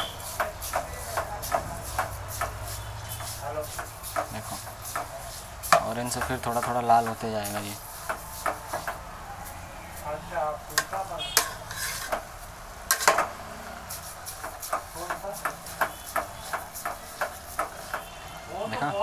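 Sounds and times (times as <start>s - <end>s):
spoon scraping and clinking in pot: 11.4s - 12.2s.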